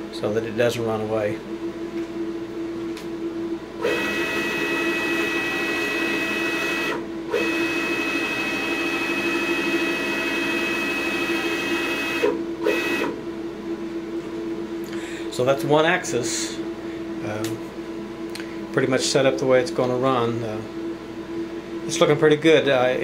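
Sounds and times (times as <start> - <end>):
vent fan hum: 0.0 - 23.0
servo motor whining: 3.8 - 13.2.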